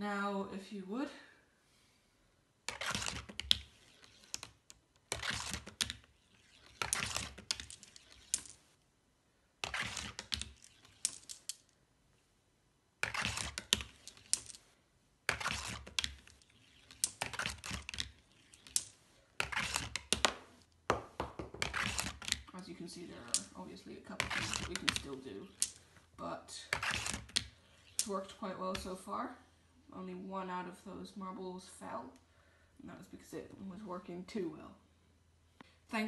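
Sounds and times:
marbles rolling on cardboard track: 2.7s - 8.6s, 9.7s - 11.7s, 13.0s - 14.6s, 15.3s - 22.5s, 24.2s - 25.8s
marbles clacking together: 10.0s - 11.7s, 24.2s - 25.8s.

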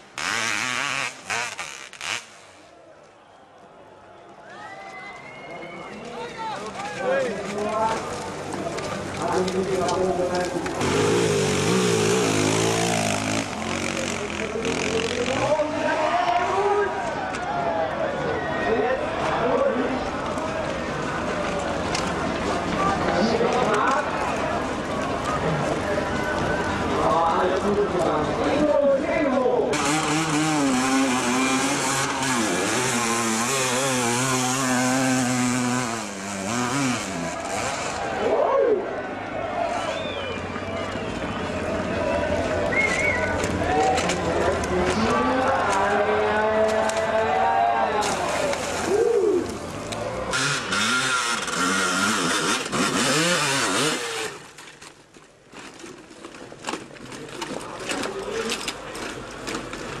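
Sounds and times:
motorcycle engine revving hard: 0.0s - 2.3s, 10.8s - 15.6s, 29.8s - 38.1s, 50.3s - 54.4s.

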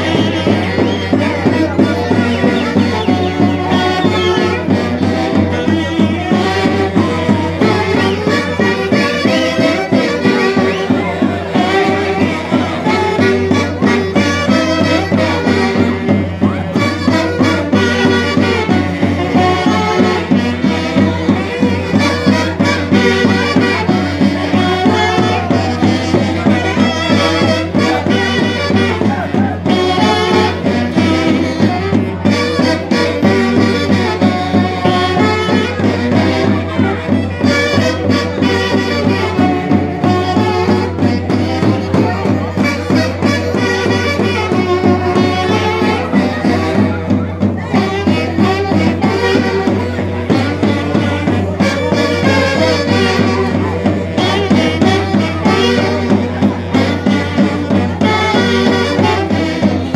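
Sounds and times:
folk band music with wind instruments: 0.0s - 59.9s.

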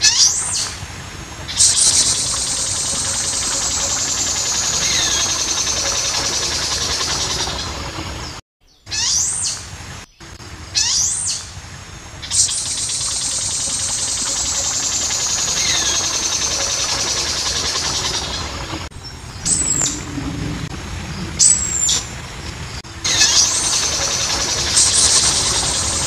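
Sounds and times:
bird calling: 12.2s - 26.0s.

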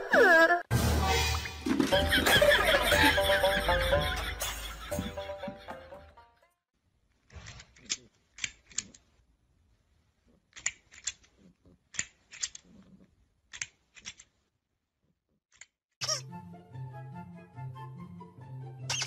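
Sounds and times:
music: 0.7s - 6.6s, 16.2s - 19.0s.

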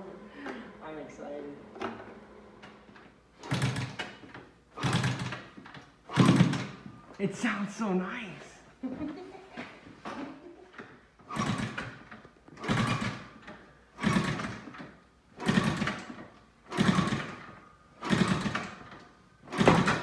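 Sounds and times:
motorcycle engine kick-starting: 1.8s - 6.9s, 10.8s - 20.0s.

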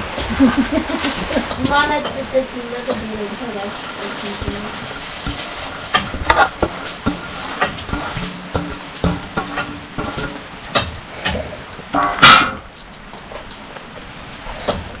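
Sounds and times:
steel plate and bowl clinking: 1.4s - 12.8s.

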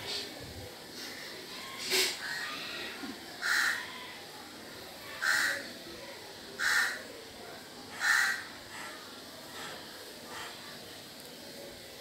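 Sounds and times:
crow cawing: 3.4s - 4.2s, 5.2s - 5.7s, 6.6s - 7.0s, 8.0s - 9.0s.

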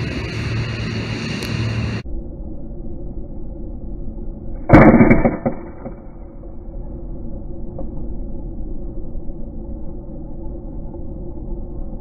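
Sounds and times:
low hum: 0.0s - 12.0s
air rifle shot: 4.7s - 6.0s.

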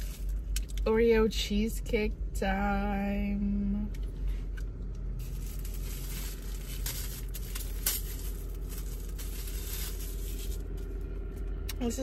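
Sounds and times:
plastic crinkling and rustling: 0.0s - 0.8s, 5.2s - 11.5s.

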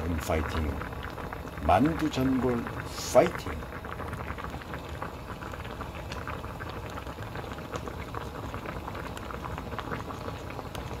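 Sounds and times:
broth bubbling at a boil: 0.0s - 11.0s.

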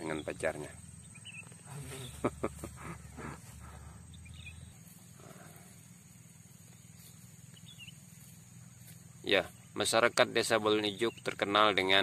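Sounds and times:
faint low rumble: 0.2s - 9.7s.

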